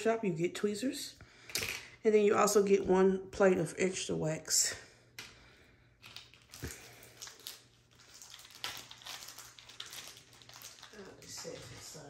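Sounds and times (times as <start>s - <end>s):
plastic bags crinkling: 6.0s - 12.0s.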